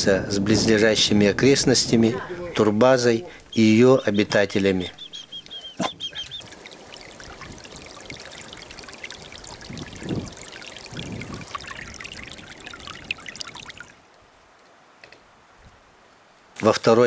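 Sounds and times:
stream babbling over stones: 3.3 - 14.1.

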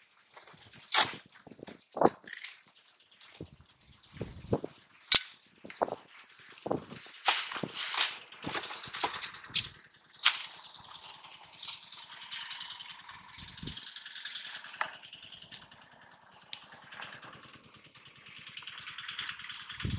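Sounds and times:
fishing gear rattling: 0.2 - 12.0
footsteps through grass: 5.9 - 8.5.

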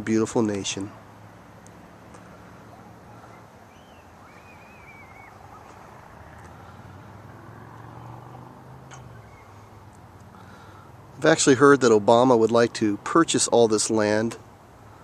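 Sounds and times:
distant engine hum: 0.0 - 15.0
wavering high-pitched call: 2.7 - 5.9, 8.9 - 9.8.

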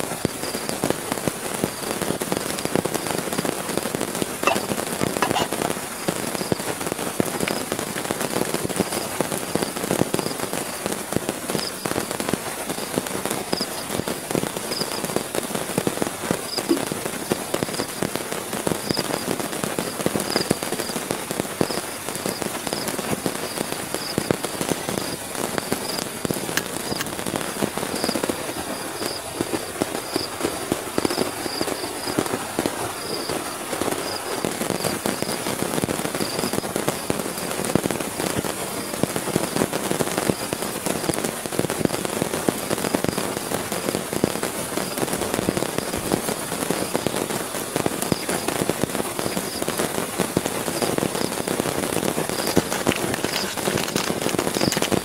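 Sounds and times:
heavy rain on tent fabric: 0.0 - 55.0
high-pitched chirps: 4.4 - 5.5.

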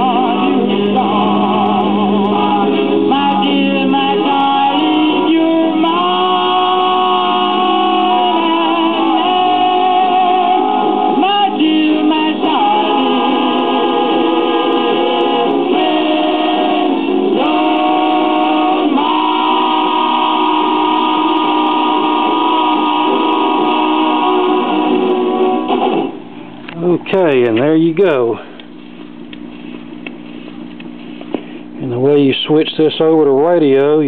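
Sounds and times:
vocal group singing on old record: 0.0 - 26.2.

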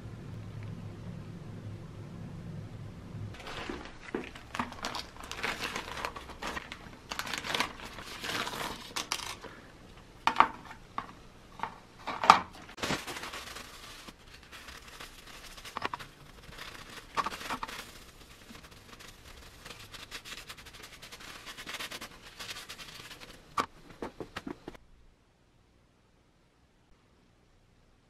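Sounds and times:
plastic bag crinkling: 3.4 - 9.7, 12.6 - 24.8.

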